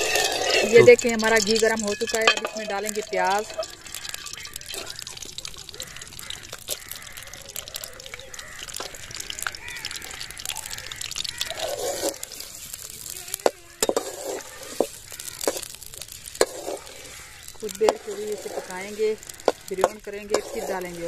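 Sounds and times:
metal ladle scraping pan: 0.0s - 5.4s, 10.4s - 21.0s
onions sizzling in hot pan: 0.0s - 21.0s.

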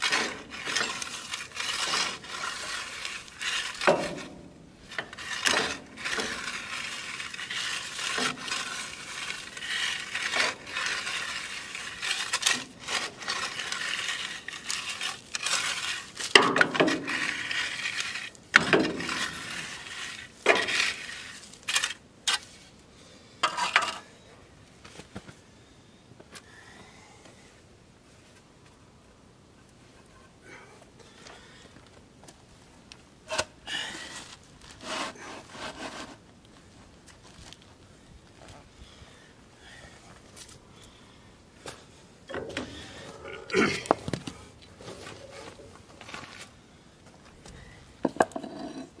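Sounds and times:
shovel scraping in gravel: 0.0s - 22.7s, 33.2s - 36.2s.

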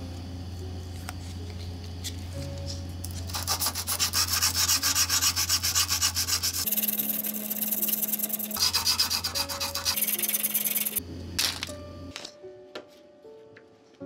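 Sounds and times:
sandpaper scratching on steel: 3.3s - 11.0s.

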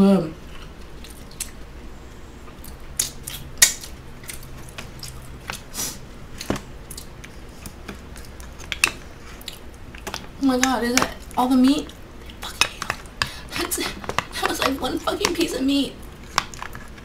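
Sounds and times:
eating sounds: 0.4s - 1.6s, 2.5s - 17.0s.

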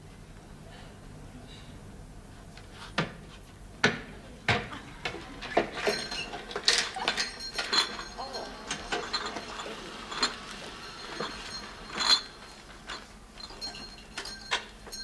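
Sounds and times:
glass milk bottles clinking: 5.4s - 15.0s.

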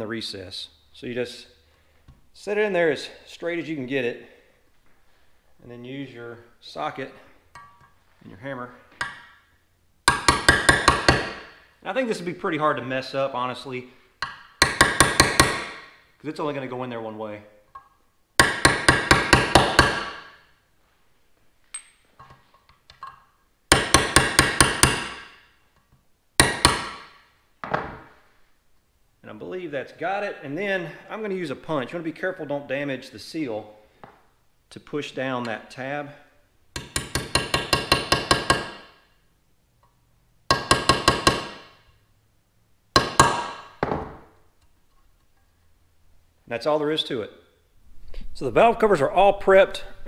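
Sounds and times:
hammer tapping steel punch: 14.2s - 15.8s, 36.8s - 38.9s, 40.5s - 41.7s.

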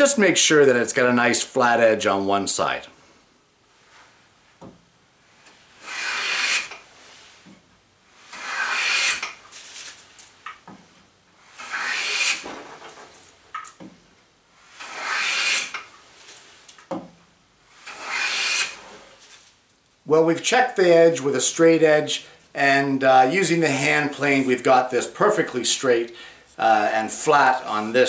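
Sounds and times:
hand plane rasping on wood: 5.8s - 6.8s, 8.3s - 9.4s, 11.6s - 12.6s, 14.8s - 15.9s, 17.8s - 19.1s.

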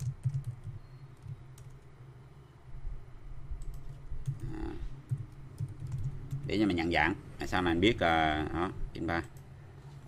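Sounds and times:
computer keyboard keys clicking: 0.0s - 1.9s, 3.6s - 4.5s, 5.1s - 6.6s.

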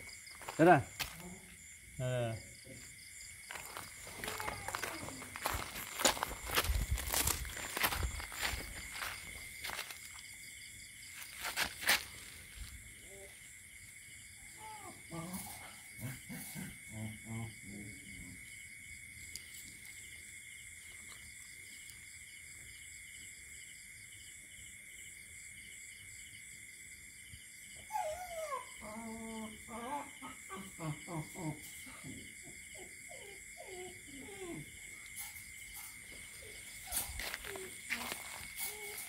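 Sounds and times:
dog whining: 27.8s - 30.7s, 32.7s - 39.0s.

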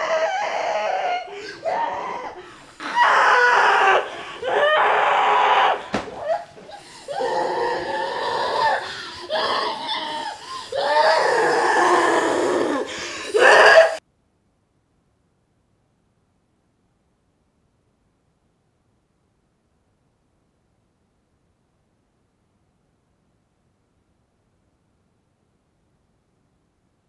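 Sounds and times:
woman screaming: 0.0s - 14.0s.

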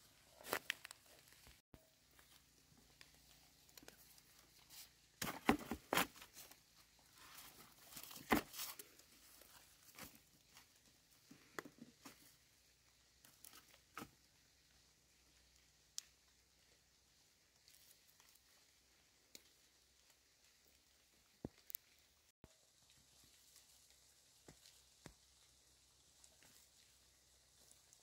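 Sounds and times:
rustling: 0.0s - 14.3s.

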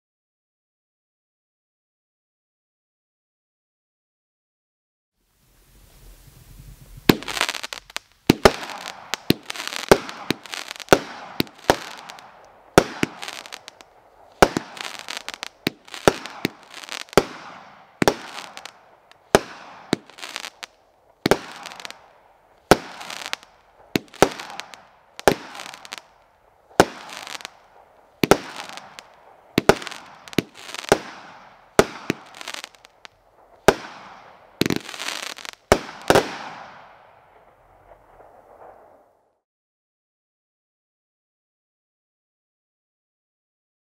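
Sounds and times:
fireworks burst crackle: 5.3s - 39.2s
fireworks bangs: 5.8s - 39.0s.

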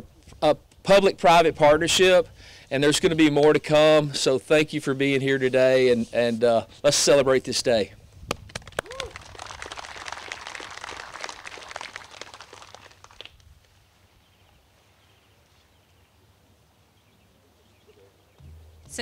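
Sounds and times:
crowd applauding: 8.5s - 13.4s.

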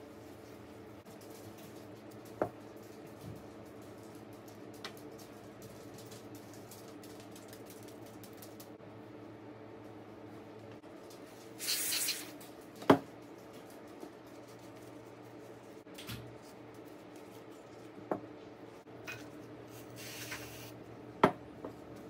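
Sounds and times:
short hiss: 11.6s - 12.3s, 20.0s - 20.7s.

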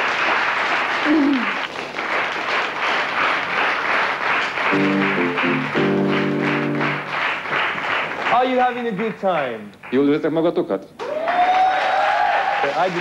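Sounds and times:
audience applauding: 0.0s - 10.1s, 11.0s - 13.0s
music with held chords: 4.7s - 7.2s.

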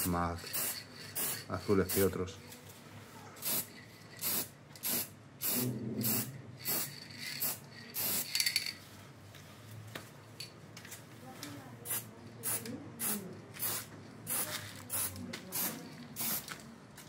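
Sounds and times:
spray paint can hissing: 0.0s - 2.1s, 3.4s - 8.7s, 11.9s - 16.6s.

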